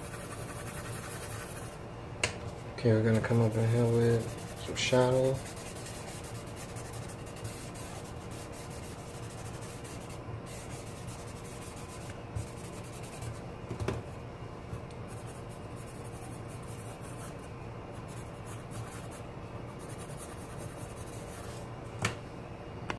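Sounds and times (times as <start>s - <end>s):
pencil scratching on paper: 0.0s - 1.8s, 3.2s - 13.4s, 15.1s - 17.4s, 18.0s - 19.2s, 19.8s - 21.6s.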